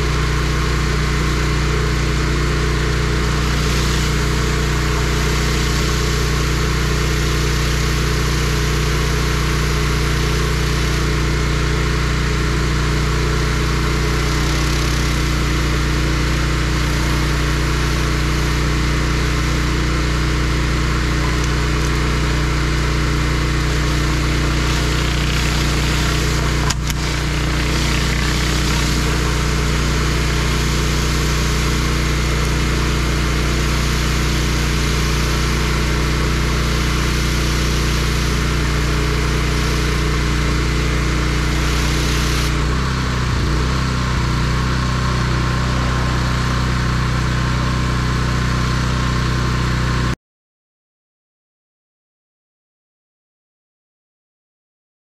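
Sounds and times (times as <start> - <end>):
pressure washer engine running: 0.0 - 50.2
water blasting onto concrete: 0.1 - 49.3.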